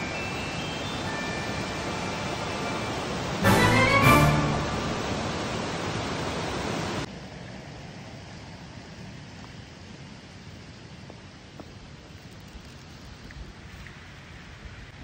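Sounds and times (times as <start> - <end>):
water rushing down a waterfall: 0.0 - 7.2
quiet outdoor hiss: 0.0 - 15.0.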